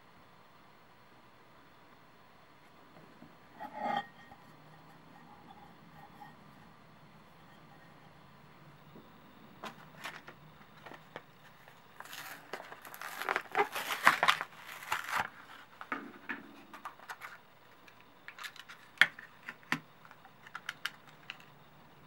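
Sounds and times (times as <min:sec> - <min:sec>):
plastic packaging crackling: 0:12.0 - 0:15.9.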